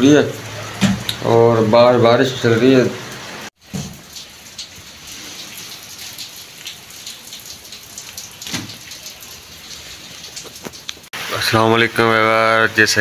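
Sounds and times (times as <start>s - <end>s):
rain pattering: 0.0s - 13.0s
rustle: 3.7s - 7.1s.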